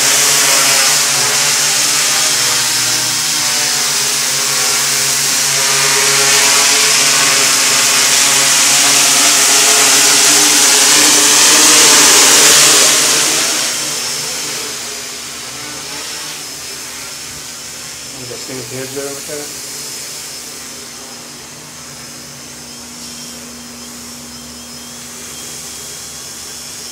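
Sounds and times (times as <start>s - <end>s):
rushing hiss of air: 0.0s - 15.6s
quadcopter motors whining: 0.0s - 26.9s.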